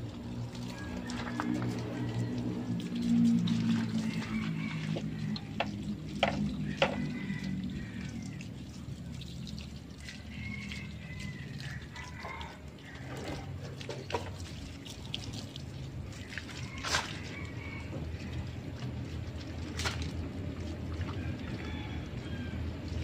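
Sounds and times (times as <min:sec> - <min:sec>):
water hose splashing: 0:00.0 - 0:23.0.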